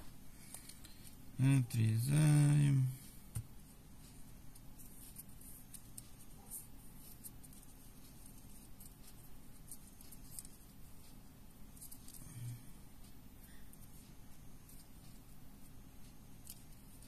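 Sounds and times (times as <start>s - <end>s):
low room hum: 0.0s - 17.0s
fingers handling thread and beads: 4.3s - 12.5s.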